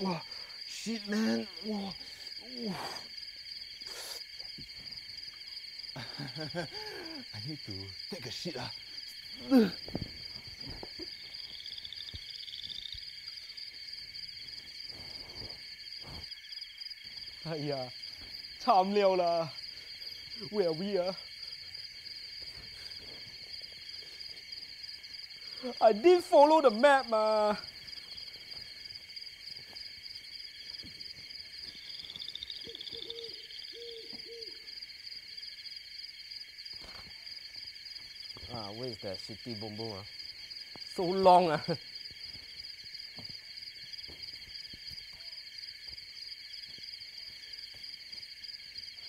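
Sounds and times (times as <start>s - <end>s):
crickets chirring: 0.0s - 49.0s
insects chorus with pulsing trill: 0.0s - 49.0s
owl hoots: 32.6s - 34.7s.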